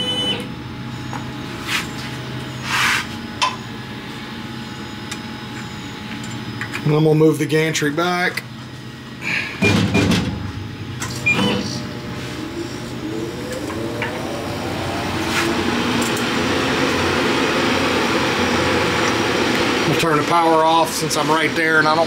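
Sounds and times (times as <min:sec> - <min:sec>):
electric motor whining: 0:11.6 - 0:19.7.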